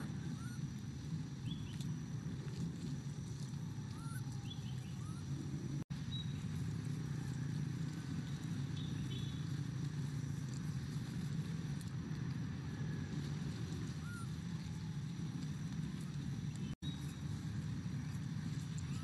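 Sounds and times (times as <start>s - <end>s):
faint rising chirps: 0.0s - 6.6s
low outdoor rumble: 0.0s - 19.0s
faint steady high tone: 3.8s - 5.4s.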